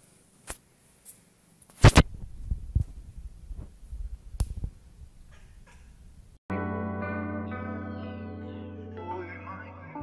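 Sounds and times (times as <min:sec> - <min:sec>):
microphone handling thumps: 0:01.8 - 0:06.1.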